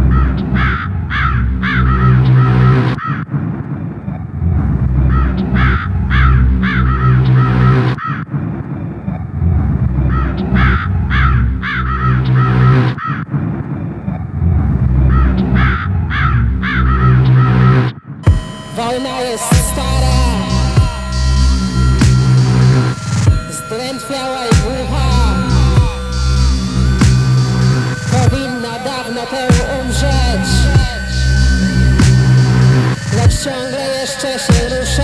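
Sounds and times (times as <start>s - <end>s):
low droning loop: 0.0s - 12.9s, 13.5s - 35.0s
harsh caw-like calls: 0.1s - 3.2s, 10.1s - 13.3s.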